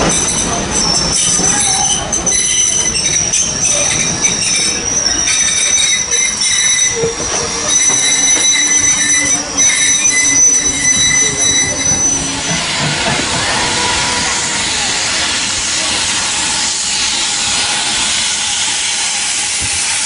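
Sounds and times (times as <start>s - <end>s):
train running noise: 0.0s - 20.0s
train wheels squealing on rails: 0.0s - 20.0s.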